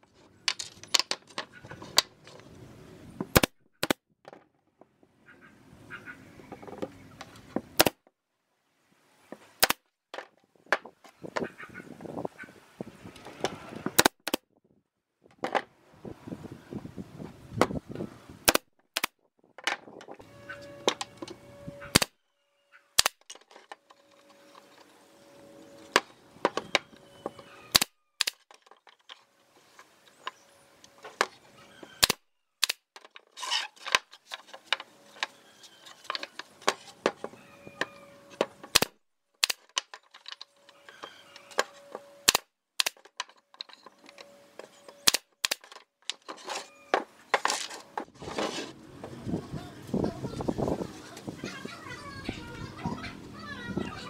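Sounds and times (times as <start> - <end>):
nail gun firing: 3.3 - 4.0, 7.8 - 8.0, 18.4 - 19.2, 23.0 - 23.2, 32.0 - 32.9, 38.7 - 39.6, 42.3 - 43.0.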